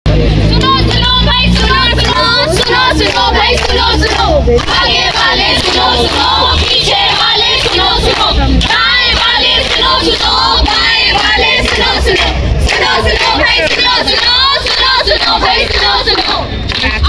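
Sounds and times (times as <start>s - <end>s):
voices chanting in unison: 0.5s - 16.6s
hand clapping: 16.2s - 17.0s.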